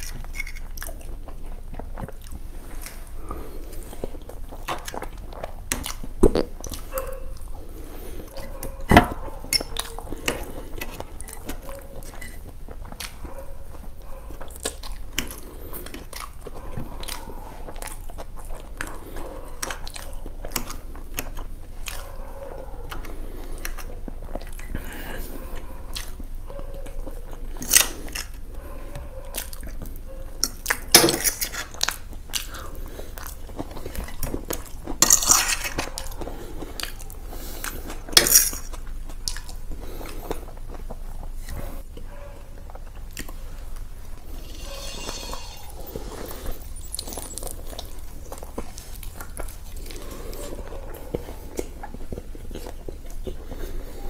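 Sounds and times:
person chewing: 0.0s - 54.0s
sharp noises: 44.1s - 48.0s.

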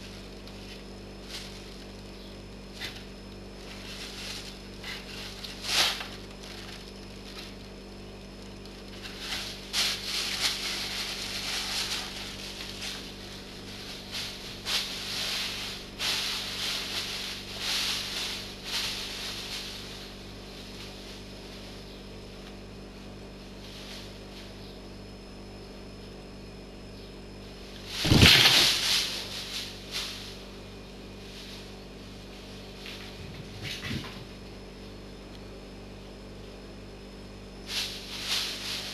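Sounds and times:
plastic bag rustling: 0.0s - 2.1s, 2.8s - 7.7s, 8.8s - 21.7s, 27.8s - 30.4s, 37.7s - 38.9s
faint steady hum: 0.0s - 38.9s
cardboard rustling: 27.9s - 29.4s
cat landing on cardboard box: 28.0s - 29.1s.

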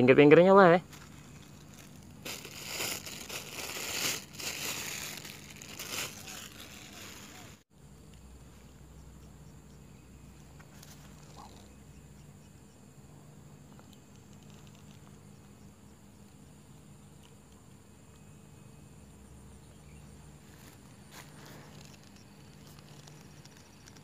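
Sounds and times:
rustling and crinkling: 0.8s - 7.7s, 10.5s - 11.7s, 13.7s - 15.2s, 20.4s - 24.0s
low hum: 0.8s - 24.0s.

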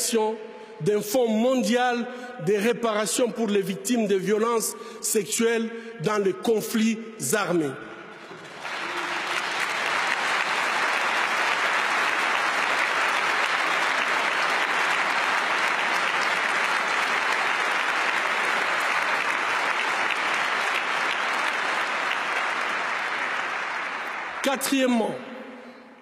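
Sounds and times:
large audience applauding: 8.2s - 25.3s.

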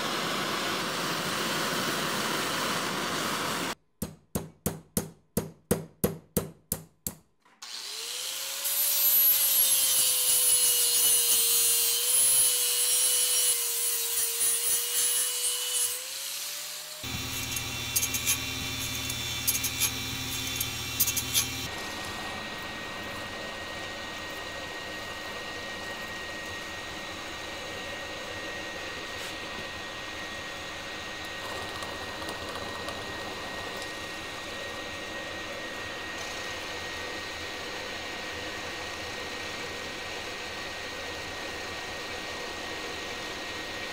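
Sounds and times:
power tool cutting metal: 7.5s - 24.2s
milling machine cutting steel: 7.6s - 25.6s
grinder wheel on steel: 17.0s - 23.4s.

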